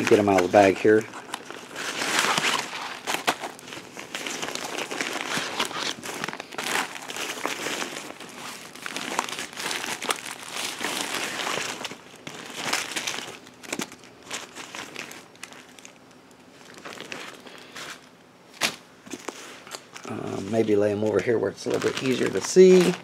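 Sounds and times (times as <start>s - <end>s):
plastic bags crinkling: 0.0s - 23.0s.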